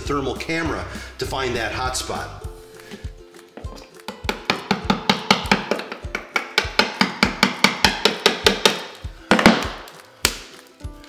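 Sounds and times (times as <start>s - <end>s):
hammer tapping chisel into mortar: 3.6s - 9.8s.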